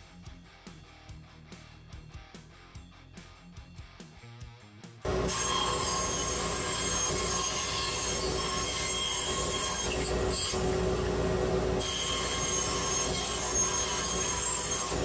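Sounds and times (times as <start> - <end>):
bandsaw whining cutting plywood: 5.1 - 15.0.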